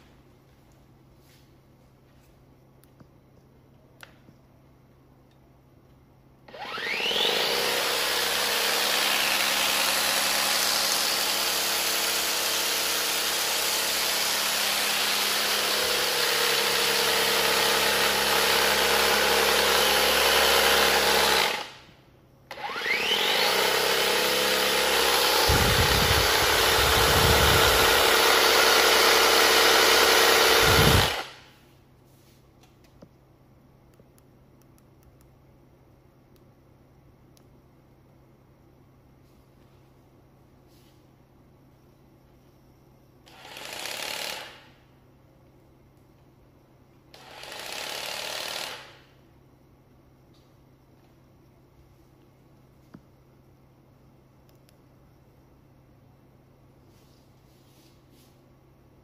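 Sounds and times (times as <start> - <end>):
power tool motor whining: 6.5 - 21.8, 22.5 - 31.4.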